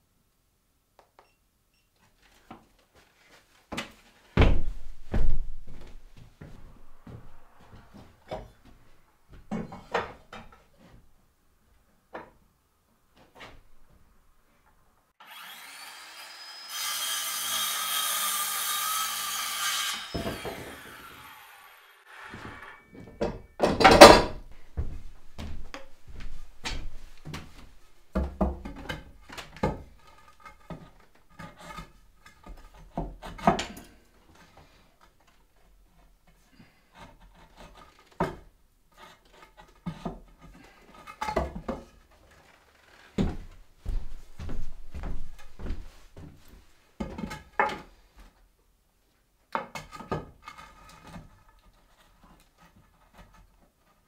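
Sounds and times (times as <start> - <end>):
wooden knocks and clunks: 3.7 - 11.0, 23.0 - 31.7
heavy wooden thump: 4.4 - 5.9
electric saw cutting wood: 15.2 - 23.0.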